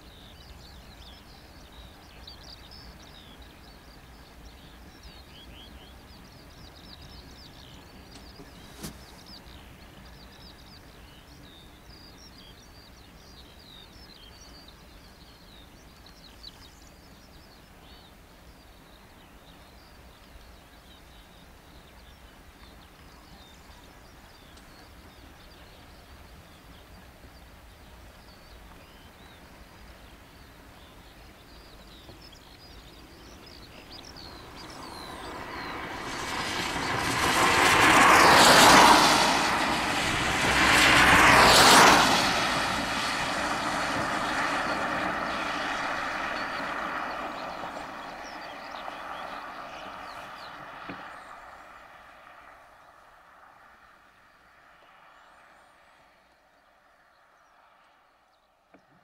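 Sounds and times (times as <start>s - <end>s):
small birds chirping: 0.0s - 59.0s
diesel locomotives approaching: 33.2s - 51.4s.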